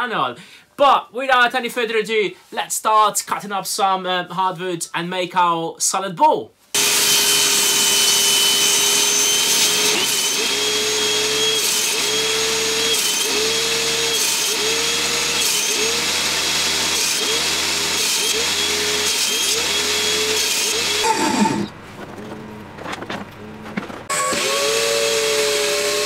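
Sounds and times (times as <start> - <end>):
table saw cutting wood: 6.8 - 26.0.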